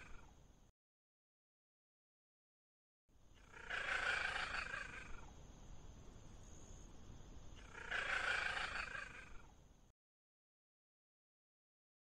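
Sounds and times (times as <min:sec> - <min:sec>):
low steady hiss: 0:00.0 - 0:00.7, 0:03.1 - 0:09.9.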